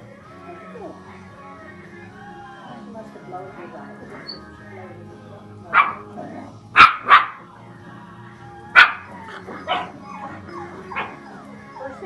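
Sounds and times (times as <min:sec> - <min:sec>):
dog barking: 0:05.7 - 0:06.1, 0:06.8 - 0:07.4, 0:08.7 - 0:11.3.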